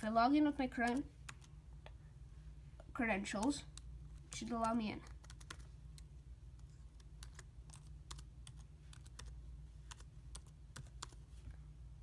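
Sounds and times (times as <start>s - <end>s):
typing on computer keyboard: 0.8s - 1.5s, 3.4s - 6.1s, 6.9s - 11.2s.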